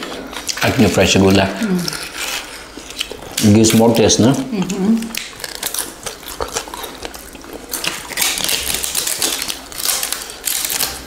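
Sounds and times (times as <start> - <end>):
chewing and crunching: 0.0 - 11.0.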